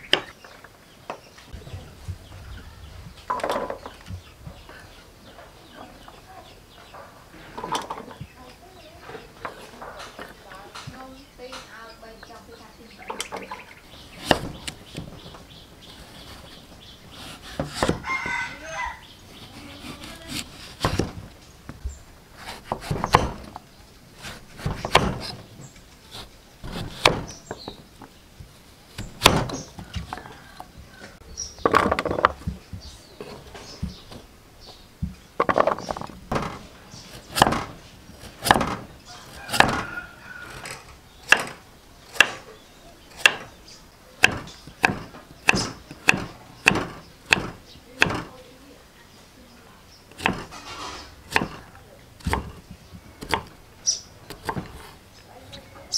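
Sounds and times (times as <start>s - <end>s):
knife chopping on wooden block: 14.2s - 14.8s, 17.2s - 18.4s, 19.5s - 21.2s, 22.4s - 23.6s, 24.2s - 25.4s, 26.2s - 27.7s, 29.0s - 30.2s, 37.2s - 40.6s, 41.2s - 42.4s, 43.2s - 43.5s, 44.2s - 48.3s, 50.1s - 50.6s, 51.3s - 52.6s, 53.2s - 53.5s, 54.3s - 54.9s.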